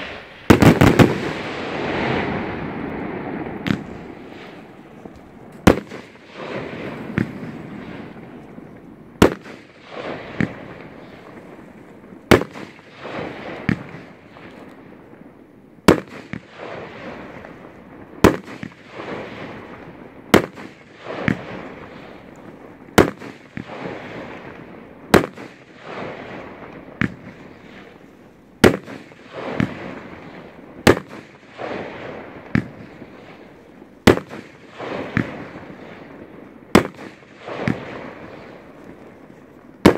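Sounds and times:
fireworks bangs: 0:00.0 - 0:15.0, 0:15.8 - 0:39.9
small firework pops: 0:02.8 - 0:06.2, 0:26.7 - 0:28.0, 0:32.4 - 0:33.0, 0:36.8 - 0:39.9.

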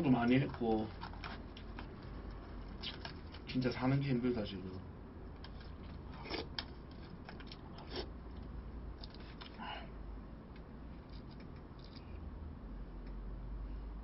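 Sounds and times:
steady low hum: 0:00.0 - 0:14.0
faint chewing: 0:00.2 - 0:03.5, 0:04.7 - 0:09.7.

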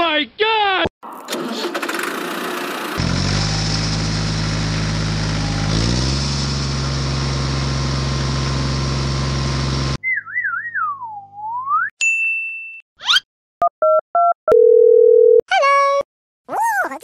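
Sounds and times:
tractor engine running: 0:01.1 - 0:10.0
cartoon whistle sliding: 0:13.0 - 0:13.2.

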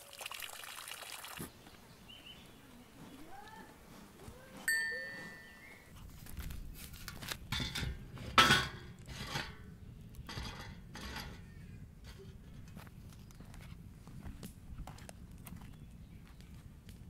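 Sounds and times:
metallic ring: 0:04.7 - 0:05.9
metal grill clattering and scraping: 0:07.0 - 0:12.8.

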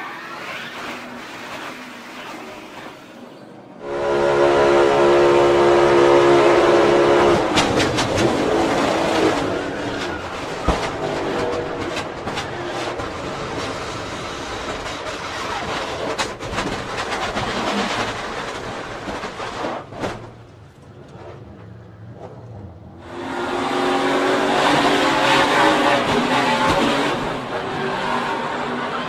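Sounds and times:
race car engine at full throttle: 0:03.8 - 0:18.8, 0:20.2 - 0:29.0
car crashing and scraping wall: 0:07.3 - 0:20.5.

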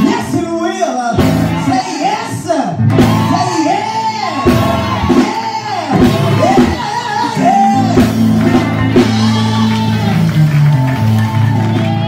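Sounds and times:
preacher whooping: 0:02.9 - 0:08.0, 0:09.1 - 0:12.0.

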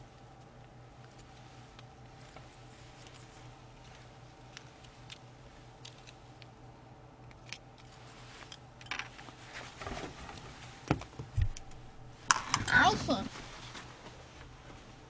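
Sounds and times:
low electrical hum: 0:00.0 - 0:15.0
rustling and knocks: 0:08.9 - 0:15.0.

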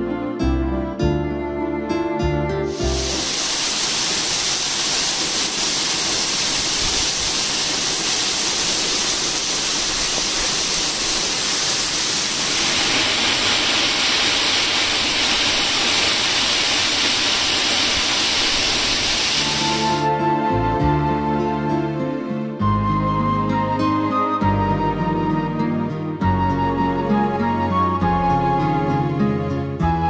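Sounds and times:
waterfall rushing: 0:02.7 - 0:20.3.

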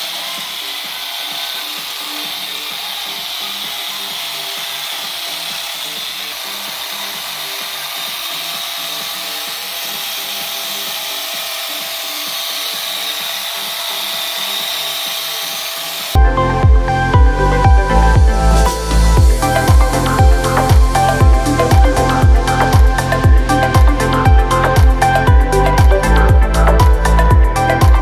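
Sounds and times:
mini polisher whine: 0:00.0 - 0:28.0
loud electronic music: 0:16.2 - 0:28.0.

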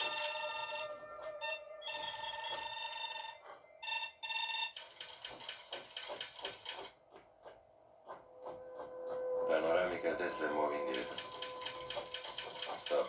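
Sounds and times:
electronic beeping and chirping tones: 0:00.0 - 0:06.8, 0:08.3 - 0:13.0.

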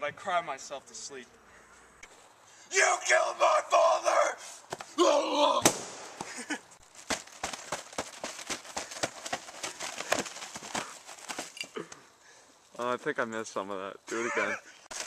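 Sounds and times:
person shouting: 0:02.7 - 0:04.4, 0:05.0 - 0:05.7, 0:14.1 - 0:14.6
sharp crack: 0:05.6 - 0:10.9.

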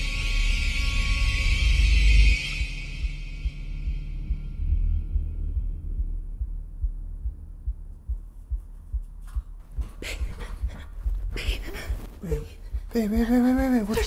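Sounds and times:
low heartbeat-like throbbing pulses: 0:00.0 - 0:14.0
bedclothes rustling: 0:09.2 - 0:12.7.

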